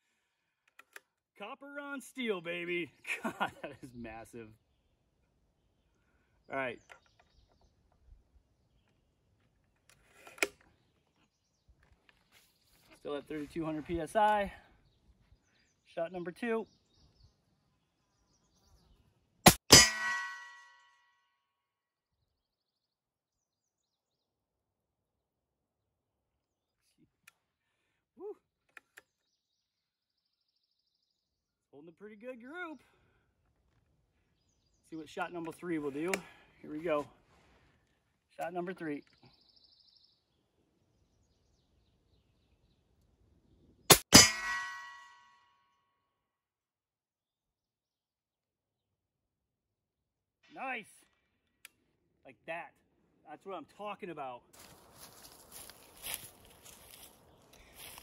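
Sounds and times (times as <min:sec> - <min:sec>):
steel plate target clanging: 0:19.5 - 0:20.8, 0:43.9 - 0:45.2.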